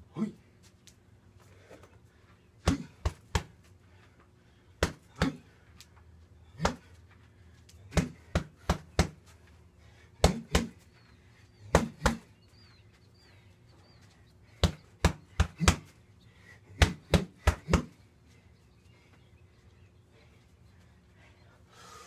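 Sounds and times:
punches smacking a punching bag: 2.6 - 3.6, 4.8 - 5.5, 6.6 - 6.9, 7.9 - 9.2, 10.2 - 10.8, 11.7 - 12.3, 14.6 - 15.9, 16.7 - 18.0.

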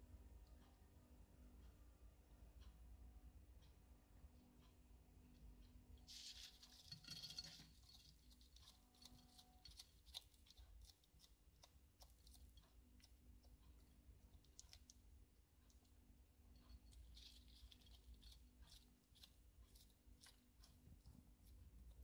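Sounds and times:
lizard chewing lettuce: 6.1 - 15.0, 16.8 - 22.0.

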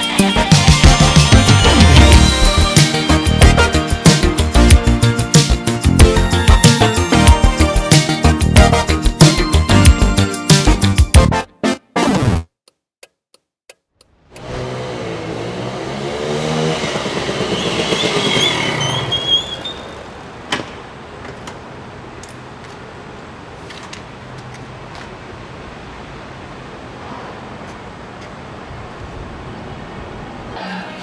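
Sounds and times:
street background: 13.7 - 31.0
motorcycle engine running: 14.4 - 19.2
brief high squeal: 17.4 - 20.0.

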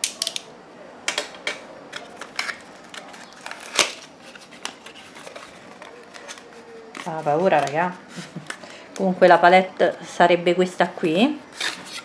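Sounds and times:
plastic wrap crinkling: 2.0 - 9.5.

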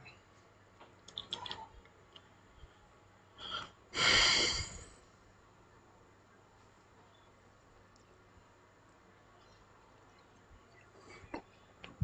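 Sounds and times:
man sniffing: 3.4 - 4.9
breath close to microphone: 3.4 - 5.0.

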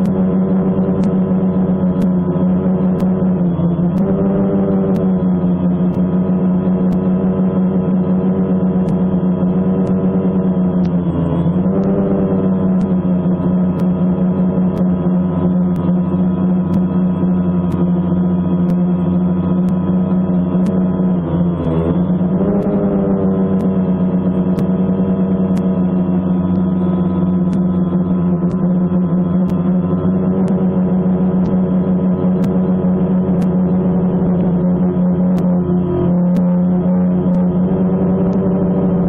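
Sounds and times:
ambient drone music: 0.0 - 39.0.

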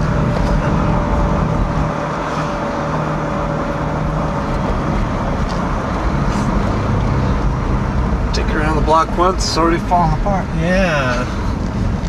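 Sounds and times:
road and drivetrain noise: 0.0 - 12.0.

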